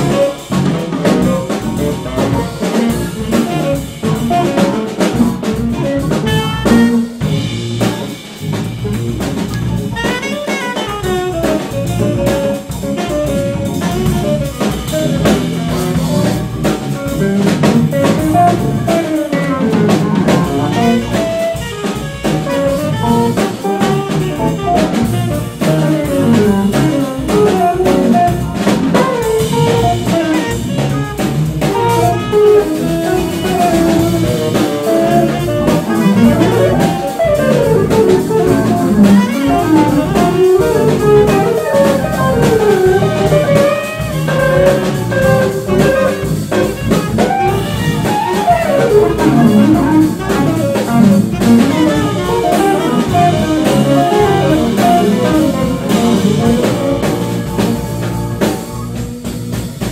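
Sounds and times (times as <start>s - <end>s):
jazz ensemble playing: 0.0s - 59.9s
saxophone melody: 0.0s - 59.9s.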